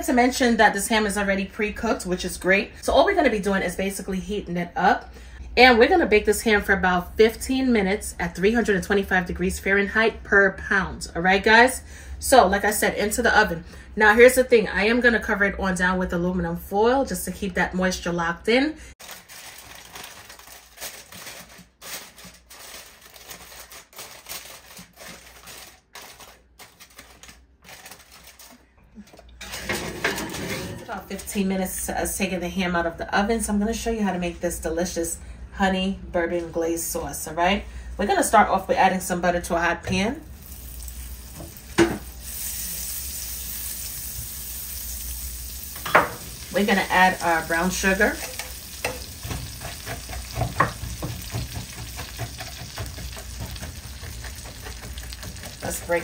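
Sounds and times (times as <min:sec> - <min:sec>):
aluminium foil crinkling: 0:19.0 - 0:28.7, 0:42.2 - 0:56.0
butter sizzling in a pan: 0:40.3 - 0:56.0.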